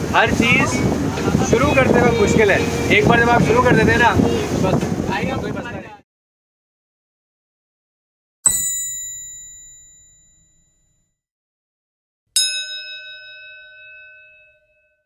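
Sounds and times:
notification bell ding: 8.5 - 10.8, 12.4 - 15.0.

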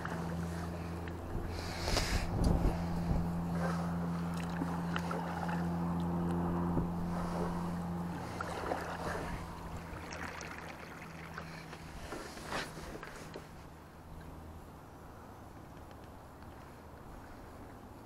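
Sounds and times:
water lapping: 0.0 - 13.7
steady low hum: 0.0 - 18.0
paddle splashes and drips: 4.2 - 13.2.

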